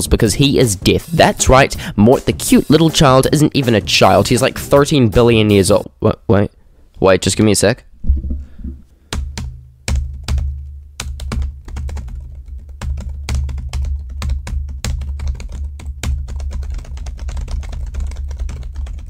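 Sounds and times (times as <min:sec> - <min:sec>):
low background music: 0:00.0 - 0:06.0.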